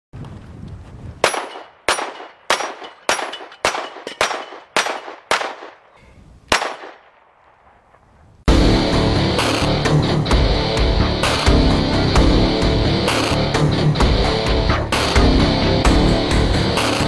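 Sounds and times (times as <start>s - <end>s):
bullets hitting steel plates: 1.2s - 5.9s
pistol shots: 1.2s - 5.9s, 6.5s - 7.8s.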